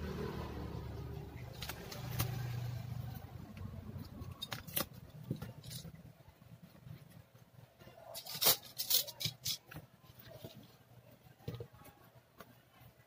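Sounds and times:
tape rustling and crinkling: 0:04.0 - 0:13.0.

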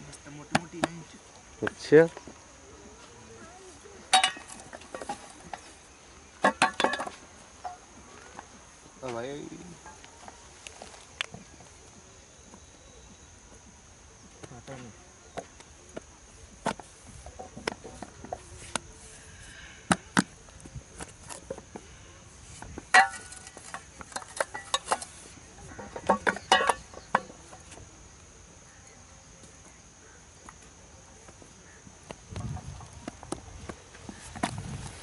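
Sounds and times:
brick mould knocking and clanking: 0:06.4 - 0:07.2, 0:25.8 - 0:27.3.

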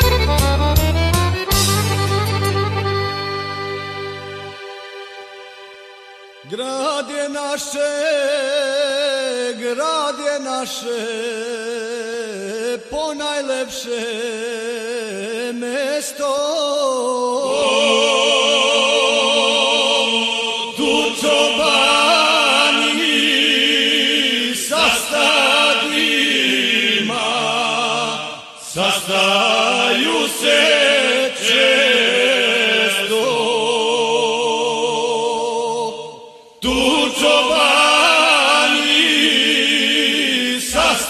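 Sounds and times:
men's folk group singing: 0:17.2 - 0:41.0.

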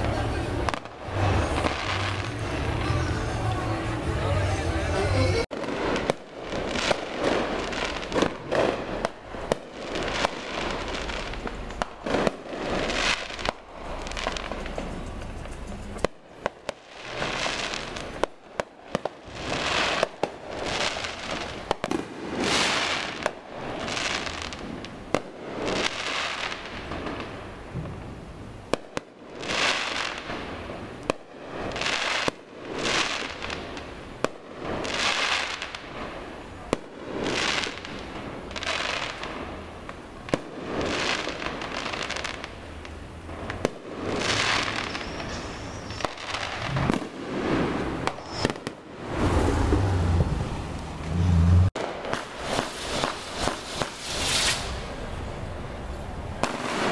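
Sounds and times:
fireworks bangs and crackling: 0:00.0 - 0:56.9.

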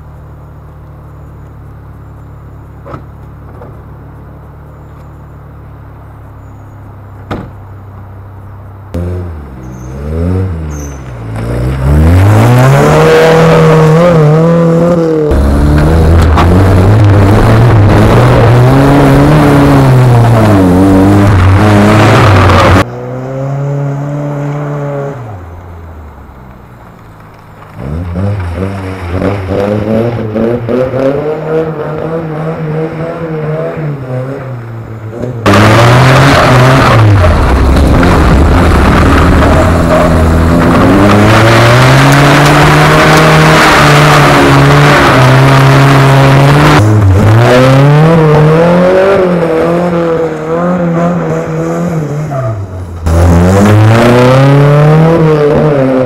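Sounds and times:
buggy engine revving hard: 0:08.9 - 0:25.4, 0:27.8 - 0:34.5, 0:35.1 - 0:56.0.

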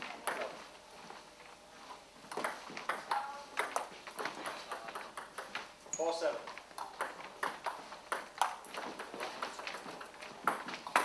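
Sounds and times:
table tennis ball clicking: 0:06.7 - 0:11.0.

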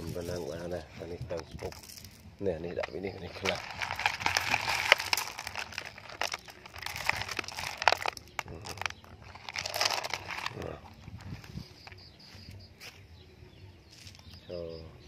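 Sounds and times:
gravel rattling into toy trucks: 0:00.0 - 0:12.0.

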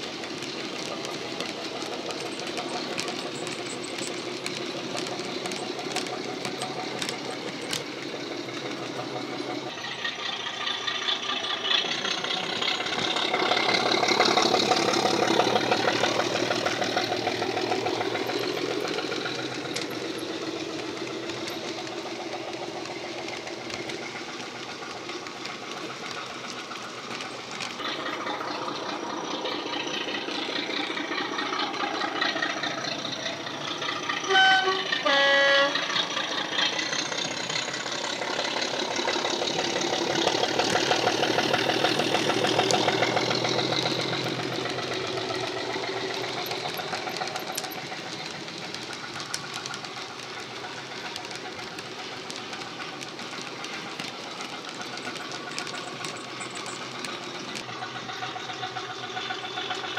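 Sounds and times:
diesel locomotive engine: 0:00.0 - 0:59.9
two-tone horn: 0:34.2 - 0:35.9.

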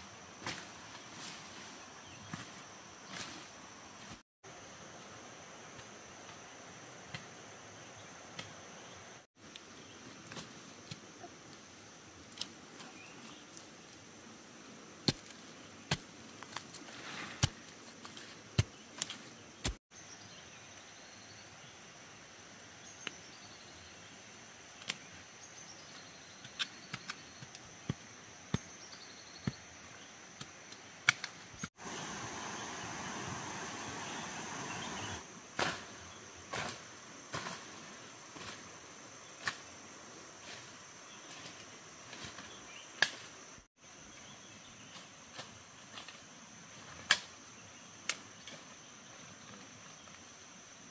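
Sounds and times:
insects droning: 0:00.0 - 0:50.9.

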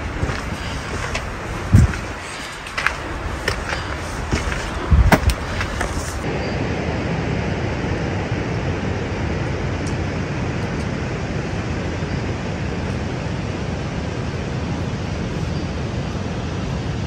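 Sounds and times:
footsteps on stone path: 0:00.0 - 0:06.2
steady rushing noise: 0:00.0 - 0:17.0.

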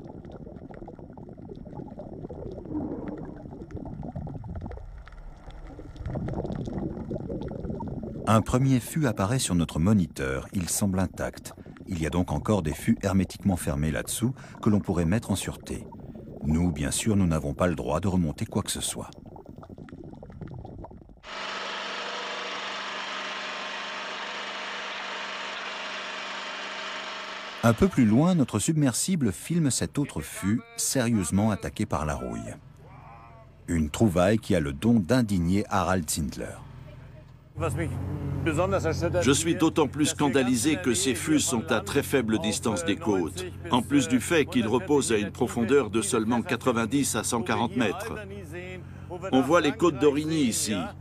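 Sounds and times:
faint low rumble: 0:00.0 - 0:21.2
underwater bubbling and gurgling: 0:00.0 - 0:21.3
boat engine hum: 0:21.2 - 0:51.0.

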